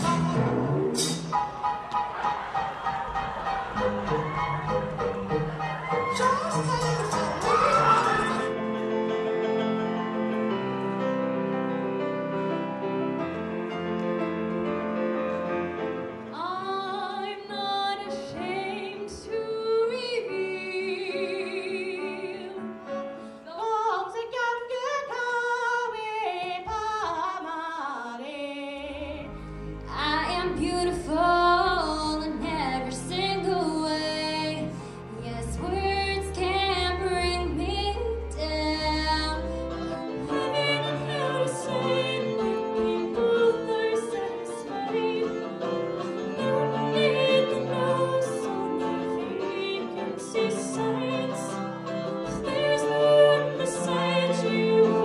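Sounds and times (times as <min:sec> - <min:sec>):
grand piano solo: 0:00.0 - 0:19.0
woman singing: 0:16.4 - 0:22.7, 0:23.5 - 0:29.3, 0:29.9 - 0:39.5.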